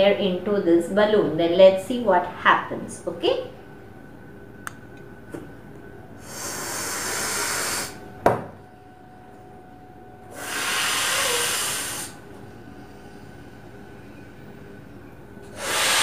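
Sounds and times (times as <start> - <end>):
blowing air into balloon: 6.2 - 8.0, 10.3 - 12.2, 15.5 - 16.0.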